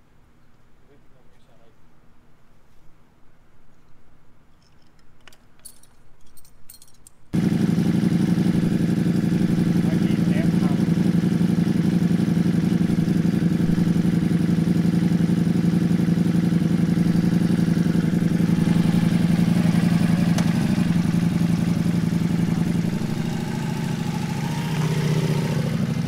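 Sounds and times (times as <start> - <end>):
motorcycle engine idling: 7.4 - 26.0.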